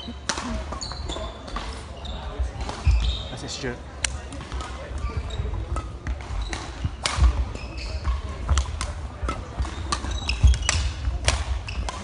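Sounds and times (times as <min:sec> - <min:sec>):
shoes squeaking on wooden floor: 0:00.7 - 0:03.7, 0:05.0 - 0:08.5, 0:09.4 - 0:12.0
racket striking shuttlecock: 0:05.7 - 0:12.0.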